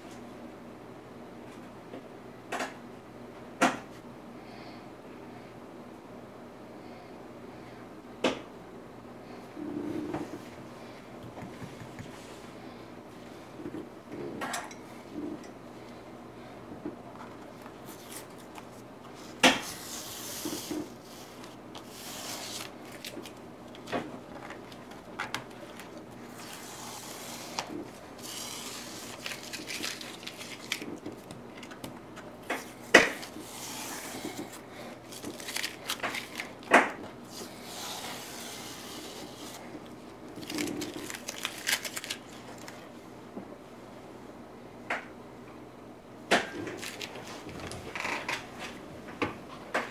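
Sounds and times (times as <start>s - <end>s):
masking tape peeling off paper: 19.6s - 23.9s, 25.7s - 31.8s, 33.1s - 36.7s, 40.4s - 42.8s.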